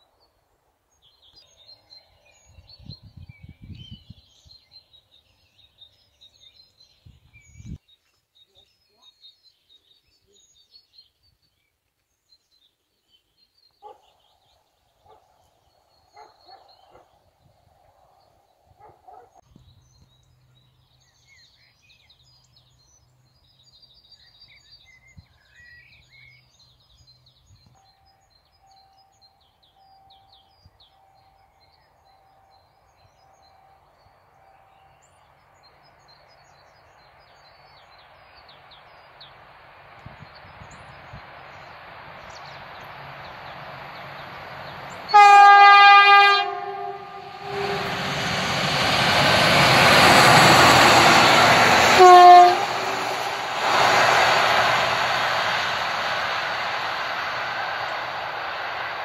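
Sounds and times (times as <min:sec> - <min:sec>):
train passing close by: 0:20.3 - 0:59.0
diesel locomotive rumble: 0:39.5 - 0:59.0
two-tone train horn blast: 0:45.1 - 0:53.8.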